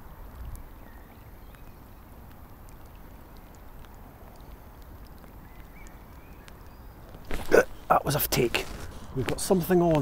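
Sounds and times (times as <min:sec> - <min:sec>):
wind rumble on microphone: 0:00.0 - 0:01.7
faint ticks: 0:00.2 - 0:07.3.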